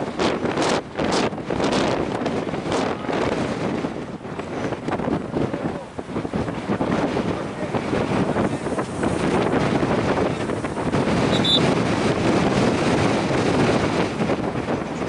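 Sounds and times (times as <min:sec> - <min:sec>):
wind buffeting microphone: 0:00.0 - 0:15.0
short high-pitched whistle: 0:11.3 - 0:11.6.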